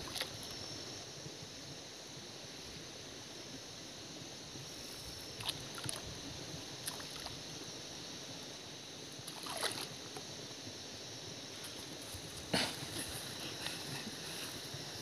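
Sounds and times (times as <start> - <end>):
outdoor background noise: 0.0 - 15.0
fish splashing in water: 9.3 - 9.9.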